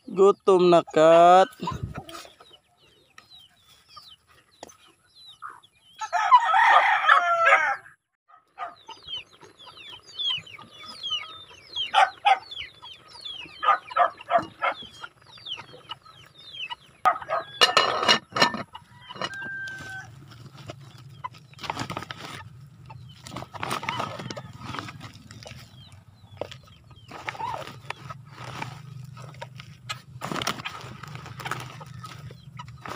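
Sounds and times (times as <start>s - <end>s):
chickens clucking: 0.0s - 6.3s, 8.4s - 32.9s
rooster crowing: 6.0s - 7.9s, 17.1s - 17.9s, 18.8s - 20.2s, 24.0s - 25.1s.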